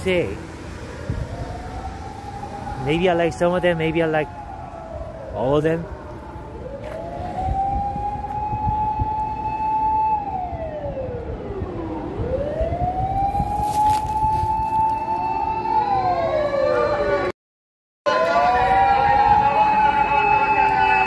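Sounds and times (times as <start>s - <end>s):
low traffic rumble: 0.0s - 17.3s
emergency vehicle siren wailing: 0.0s - 17.4s, 18.1s - 21.0s.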